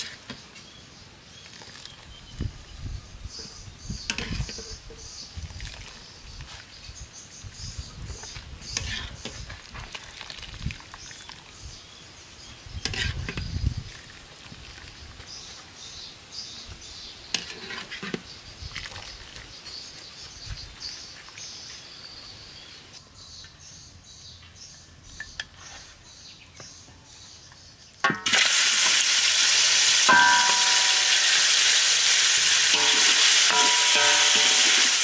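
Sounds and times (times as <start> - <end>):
water splashing and dripping: 9.4 - 11.6
birds chirping: 30.1 - 31.9.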